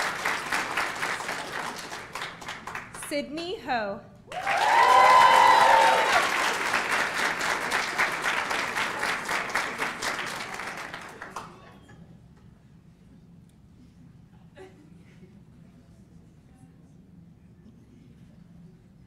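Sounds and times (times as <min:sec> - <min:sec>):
audience applauding: 0:00.0 - 0:03.1, 0:04.3 - 0:11.8
high cheering shouts: 0:04.3 - 0:07.1.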